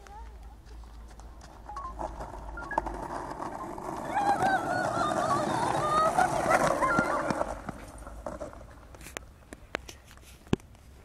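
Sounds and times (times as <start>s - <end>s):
skateboard wheels on rough asphalt: 0.0s - 11.0s
child yelling: 4.0s - 7.6s.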